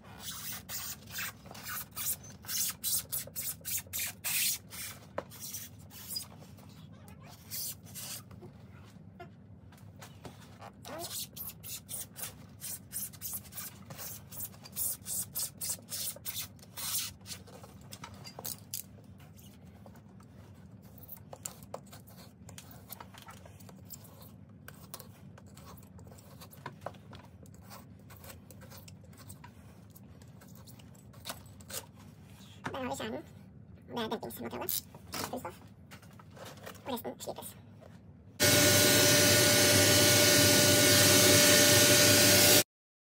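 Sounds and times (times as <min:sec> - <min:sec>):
knife scraping rubber sole: 0:00.1 - 0:06.3.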